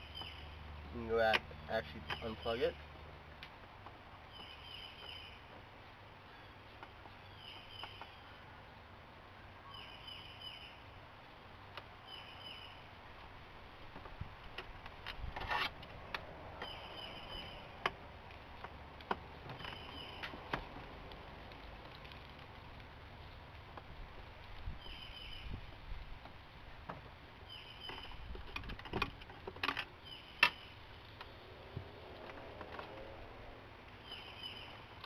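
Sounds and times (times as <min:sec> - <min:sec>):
scraping rustle: 0:13.8 - 0:16.0
small clicks and knocks: 0:17.8 - 0:24.7, 0:27.8 - 0:31.4
bird chirping falling call: 0:34.0 - 0:34.9.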